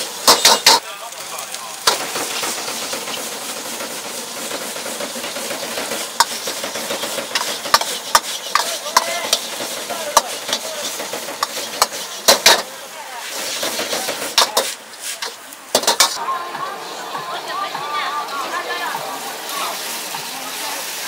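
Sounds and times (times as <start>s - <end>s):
steady sizzle: 0.0s - 21.0s
metal ladle clanging on wok: 0.3s - 0.8s.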